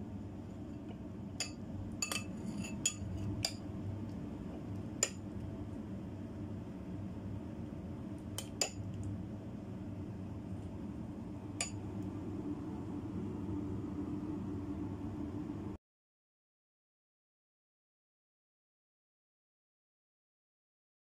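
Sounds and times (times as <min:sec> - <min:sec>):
steady low hum: 0:00.0 - 0:15.8
metal spoon clinking on ceramic bowl: 0:01.4 - 0:03.6.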